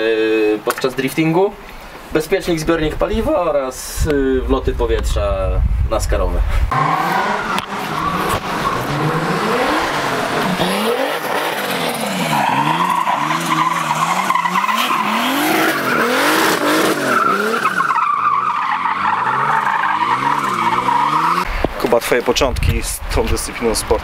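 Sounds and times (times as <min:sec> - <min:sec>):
car engine revving: 0:06.7 - 0:21.5
tyres squealing: 0:06.7 - 0:21.5.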